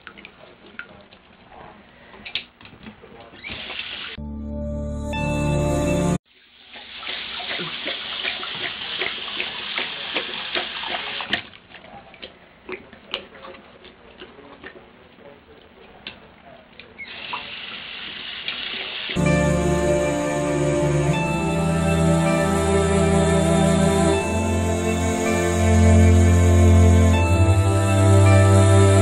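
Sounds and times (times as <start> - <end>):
music: 4.2 - 6.2, 19.2 - 29.0
dog lapping water: 7.1 - 15.0.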